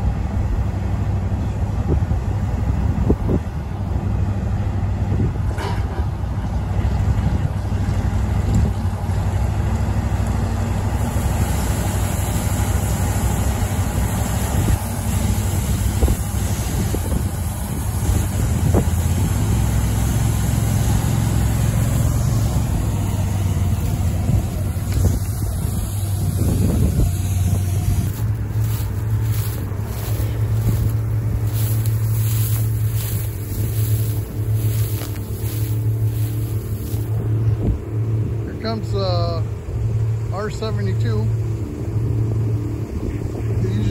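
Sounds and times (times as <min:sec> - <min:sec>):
diesel tractor running: 0:00.0 - 0:43.9
wind buffeting microphone: 0:01.7 - 0:04.2, 0:14.1 - 0:38.4
grain pouring through auger: 0:24.9 - 0:37.1.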